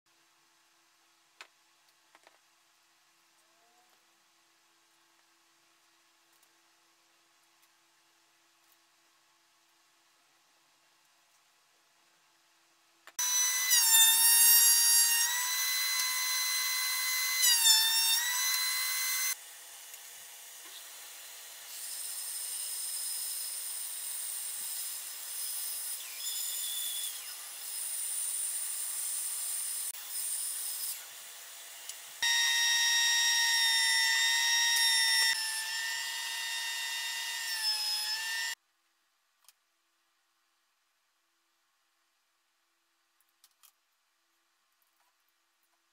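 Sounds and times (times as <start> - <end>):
table saw whining: 13.2 - 19.4, 20.7 - 38.6
power saw whining: 32.2 - 38.6.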